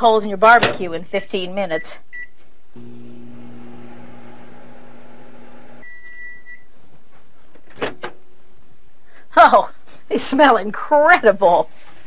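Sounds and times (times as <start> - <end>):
long microwave beep: 2.2 - 6.7
microwave oven humming: 2.8 - 6.1.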